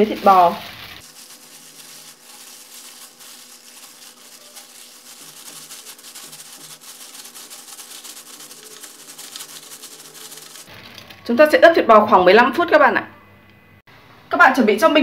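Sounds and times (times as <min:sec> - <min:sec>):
gloved hand kneading minced meat: 0:00.0 - 0:11.1.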